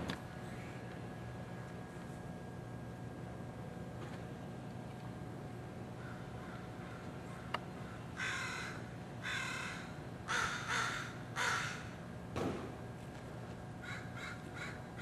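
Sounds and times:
crow cawing: 0:06.0 - 0:12.0, 0:13.8 - 0:15.0.

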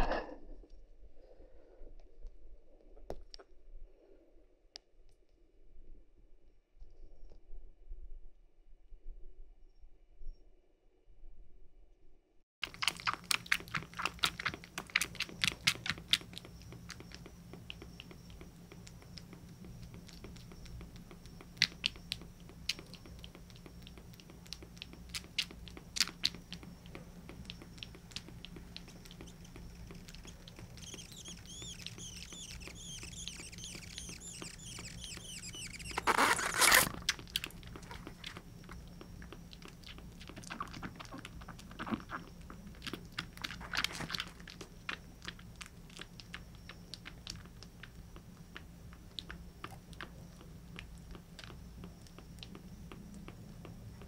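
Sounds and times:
kitten sucking from bottle: 0:12.6 - 0:54.0
steady low hum: 0:12.6 - 0:54.0
faint high squeaking: 0:26.0 - 0:39.8.

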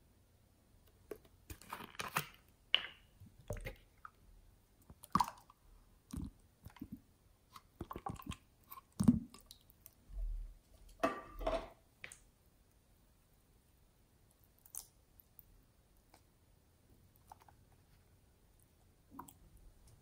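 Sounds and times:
slime squelching: 0:04.8 - 0:10.1.

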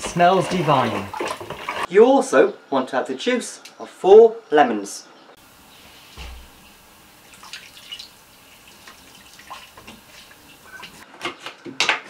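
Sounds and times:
juice dripping into liquid: 0:05.4 - 0:11.0
soft thump: 0:06.1 - 0:06.8.

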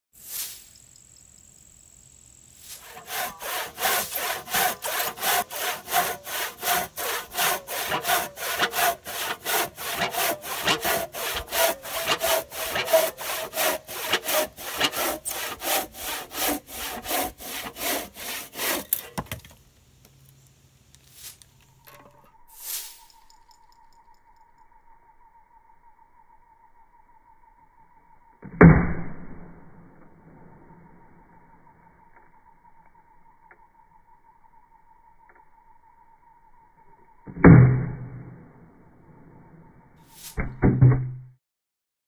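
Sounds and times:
handsaw cutting wood: 0:02.8 - 0:19.3.

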